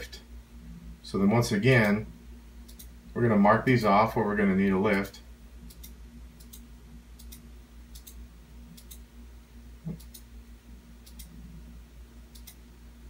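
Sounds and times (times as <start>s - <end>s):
low steady hum: 0.0s - 13.0s
computer mouse clicking: 2.7s - 2.9s, 5.7s - 6.6s, 7.2s - 8.2s, 8.8s - 9.0s, 9.8s - 10.3s, 11.0s - 11.4s, 12.3s - 12.6s.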